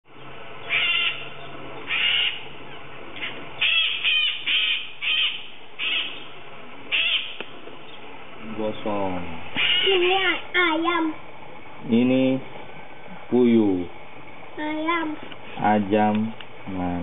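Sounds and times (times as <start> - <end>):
parrot harsh calls: 0.6 - 6.3, 6.9 - 7.4, 9.5 - 10.4.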